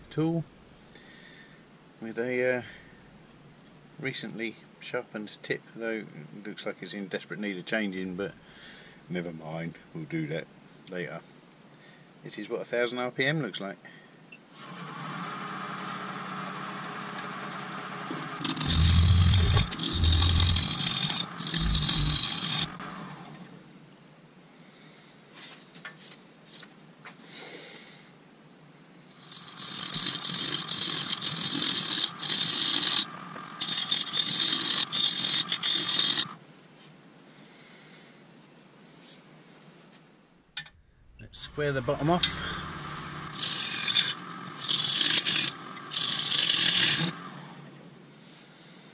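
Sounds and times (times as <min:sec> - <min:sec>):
lathe motor whine: 0:14.5 - 0:23.5, 0:29.2 - 0:36.4, 0:41.2 - 0:47.4
lathe tool scraping wood: 0:14.6 - 0:23.0, 0:29.1 - 0:36.4, 0:41.2 - 0:47.3.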